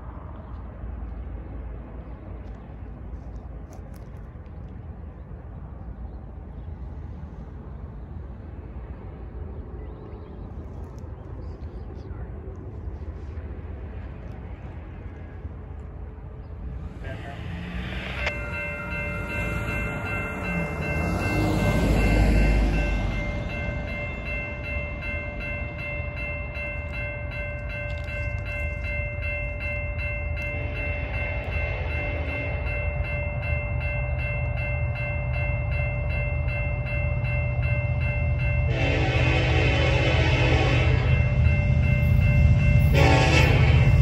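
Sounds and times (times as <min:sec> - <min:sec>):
vehicle rumbling over crossing: 0:15.3 - 0:38.8
electronic crossing bell chord: 0:16.8 - 0:44.0.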